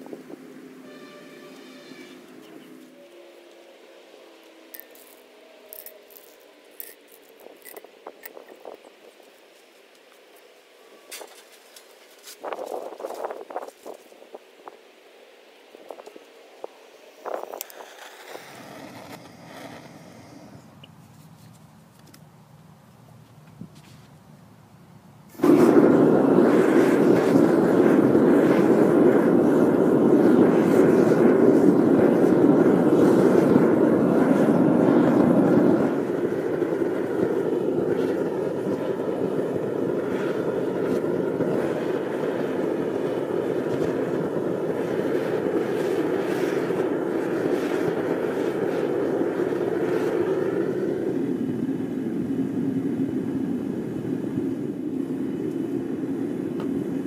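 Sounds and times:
furnace burner roaring: 0.0 - 21.0, 24.7 - 57.0.

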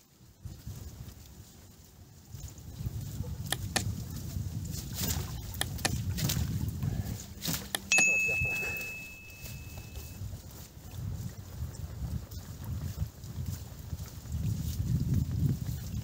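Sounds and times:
wind rumble on microphone: 0.0 - 7.9, 8.9 - 16.0
bright bell-like ding: 7.9 - 10.2.

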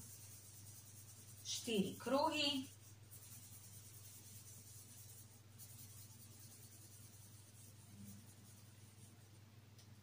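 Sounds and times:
pencil scratching on paper: 0.0 - 9.3
low steady hum: 0.0 - 10.0.

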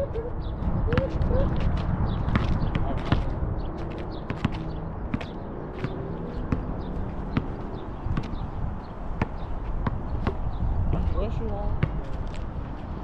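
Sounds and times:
steady low rumble: 0.0 - 5.2
basketball bouncing on asphalt: 0.9 - 8.4, 9.2 - 12.4.

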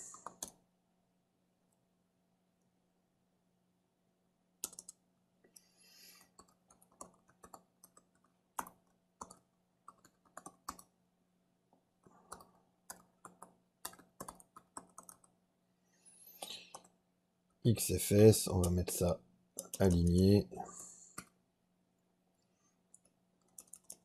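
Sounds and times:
faint keyboard keystrokes: 4.6 - 5.6, 6.2 - 10.9, 22.9 - 24.0.

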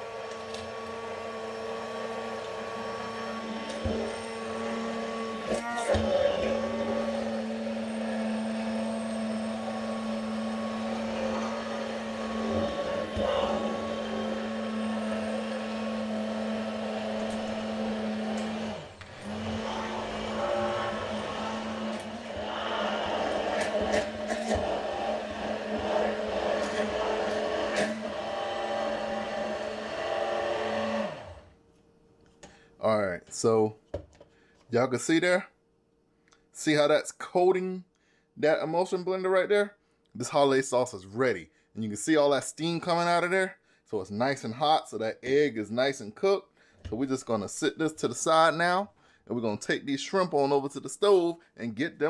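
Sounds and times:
immersion blender motor hum: 0.0 - 31.6.

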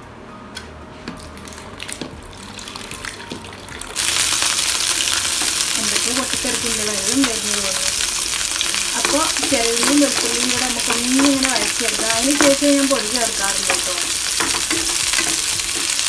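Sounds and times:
shallots sizzling in hot oil: 3.8 - 16.0.

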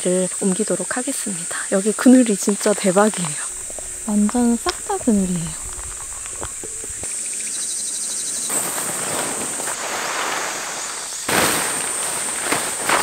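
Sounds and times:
insects buzzing: 0.0 - 13.0
plastic sheet rustling on gravel: 8.4 - 13.0.

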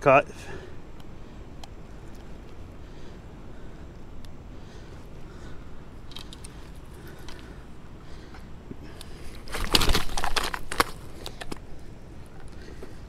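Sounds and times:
fish thrashing in net: 9.4 - 11.0.

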